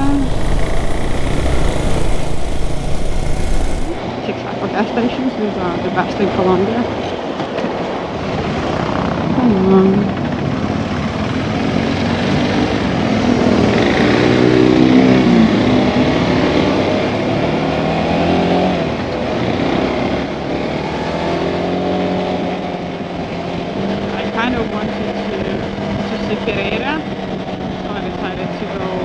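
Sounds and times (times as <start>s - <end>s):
motorcycle engine revving: 0.0s - 4.0s
wind rushing: 0.0s - 4.0s.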